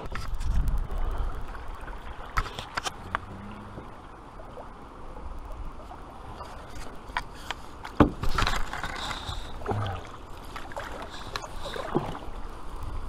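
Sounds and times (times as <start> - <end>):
paddle splashing in water: 1.0 - 12.7
paddle knocking against canoe: 7.8 - 12.3.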